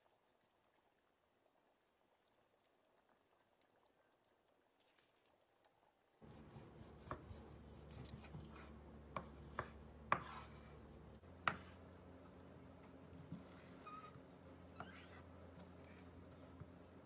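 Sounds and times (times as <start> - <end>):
knife cutting meat on wooden board: 6.3 - 10.8.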